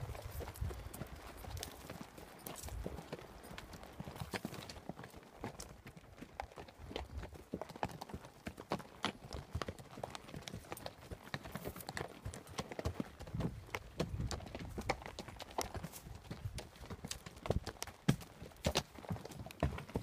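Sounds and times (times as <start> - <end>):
horse hooves clopping on dirt: 0.0 - 20.0.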